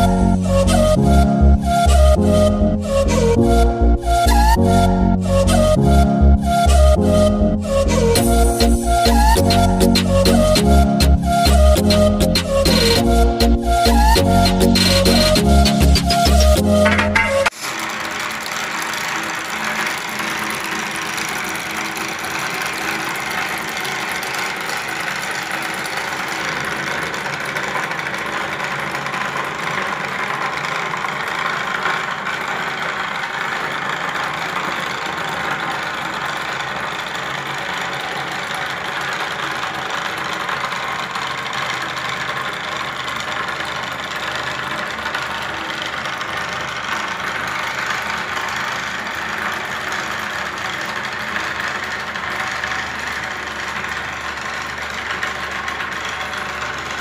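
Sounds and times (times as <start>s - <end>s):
small electric motors running: 17.5s - 57.0s.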